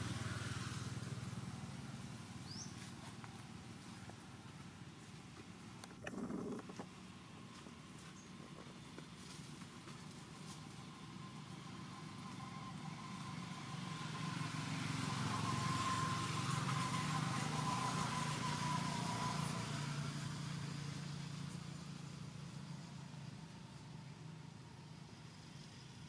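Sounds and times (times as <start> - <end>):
vehicle passing by: 0.0 - 2.9, 10.9 - 22.9
faint engine whine: 0.0 - 26.0.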